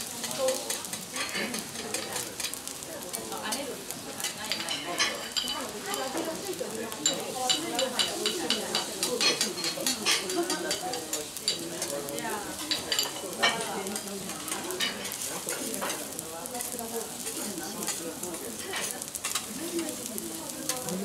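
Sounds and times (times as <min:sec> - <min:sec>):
food sizzling on a griddle: 0:00.0 - 0:21.0.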